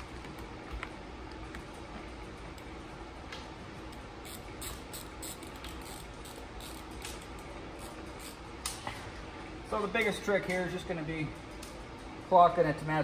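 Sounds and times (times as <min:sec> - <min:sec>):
hand ratchet clicking: 0:04.2 - 0:08.8.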